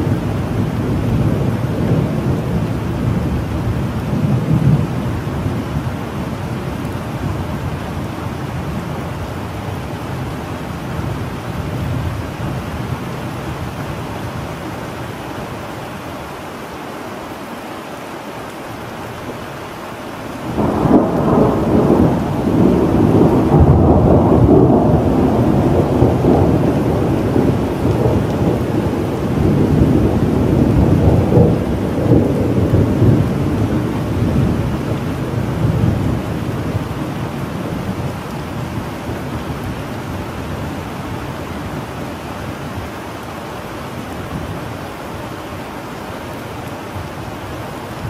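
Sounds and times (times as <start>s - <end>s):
steady rain: 0.0s - 48.0s
thunder rumbling: 20.4s - 42.0s.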